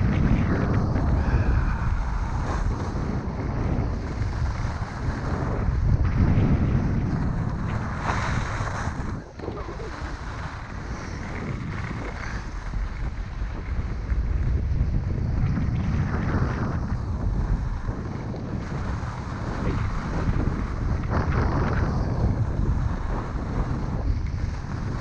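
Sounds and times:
wind buffeting microphone: 0.0 - 25.0
skis hissing on packed snow: 0.9 - 5.5, 7.4 - 14.1.

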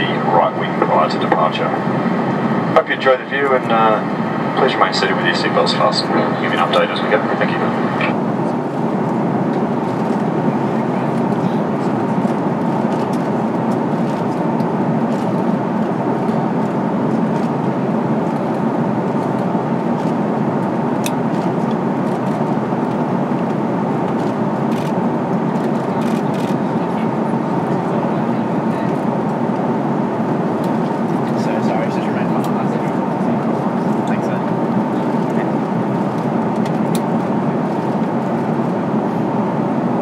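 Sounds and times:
aircraft cabin roar: 0.0 - 40.0.

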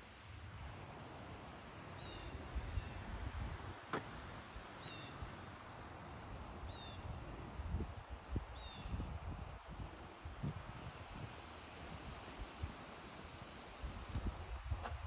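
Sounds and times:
insect trill: 0.0 - 11.7.

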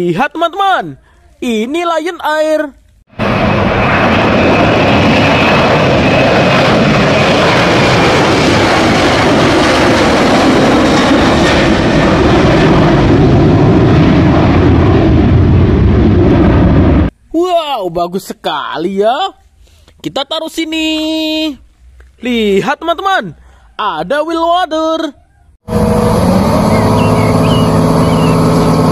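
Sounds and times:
jet engines at takeoff thrust: 3.1 - 17.2, 25.7 - 28.9
faint high engine whine: 25.7 - 28.9.

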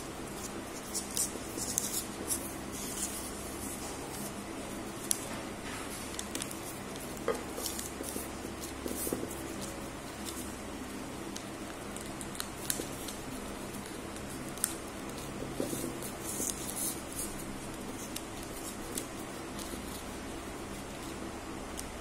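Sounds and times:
paper rustling: 0.3 - 10.5.

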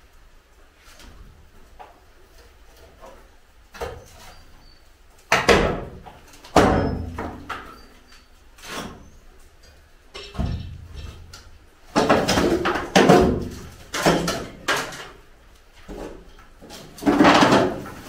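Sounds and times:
wooden bangs and clatters: 5.2 - 8.0, 9.6 - 18.0.

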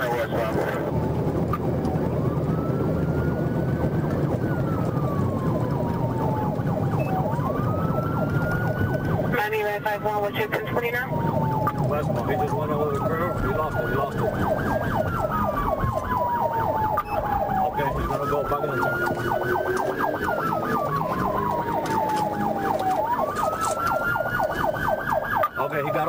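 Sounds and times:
police siren wail: 0.0 - 26.0
police siren yelp: 0.0 - 26.0.

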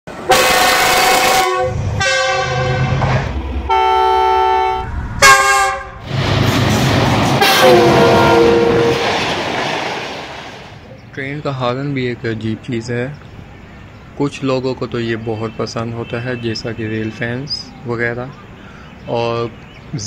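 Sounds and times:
locomotive and rail rumble: 0.1 - 20.0
locomotive air horn blasts: 0.2 - 6.0, 7.4 - 9.1.

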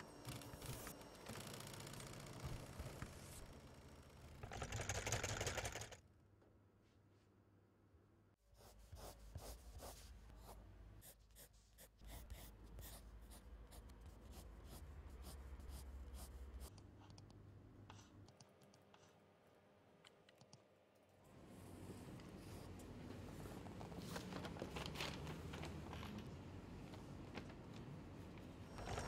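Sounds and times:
pencil scratching on paper: 8.5 - 17.2.

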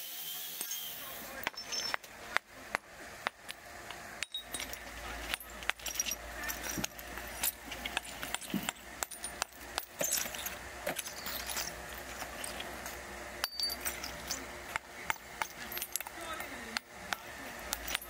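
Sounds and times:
low machine hum: 1.0 - 18.0
metal parts clinking and knocking: 1.4 - 2.1, 4.2 - 16.9, 17.6 - 18.0.

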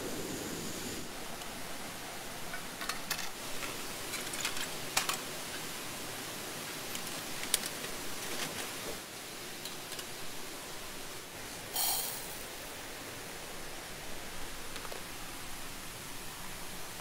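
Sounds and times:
steady hiss: 0.0 - 17.0
rice poured into metal pot: 11.7 - 12.4.

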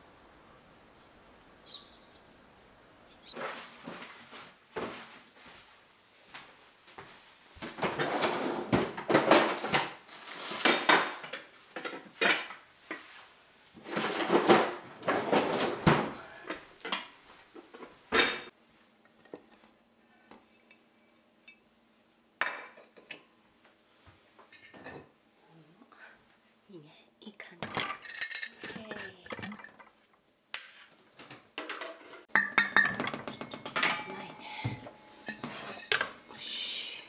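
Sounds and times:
dishes clinking and knocking: 10.6 - 13.1, 17.7 - 18.5, 22.4 - 23.3, 27.6 - 30.0, 31.6 - 36.2.

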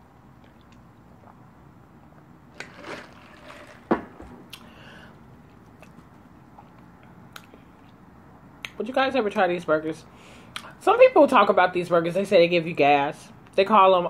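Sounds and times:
sipping through a straw: 2.6 - 3.9
wet mouth clicks while chewing: 5.7 - 7.9.

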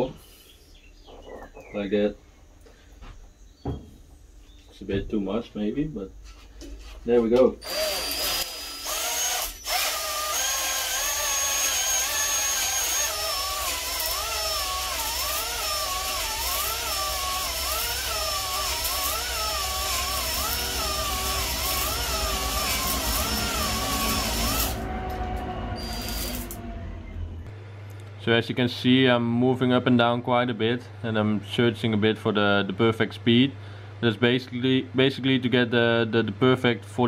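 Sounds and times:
electric drill whining: 7.6 - 26.8.

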